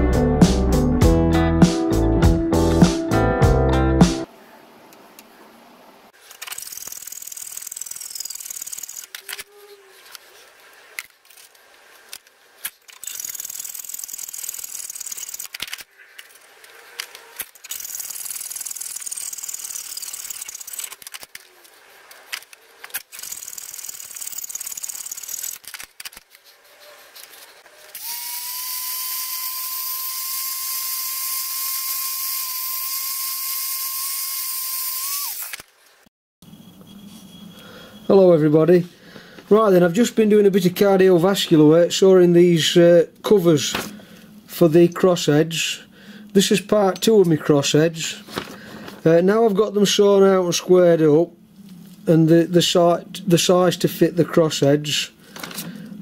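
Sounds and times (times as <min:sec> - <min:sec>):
sped-up hand saw hiss: 0:26.5 - 0:35.6.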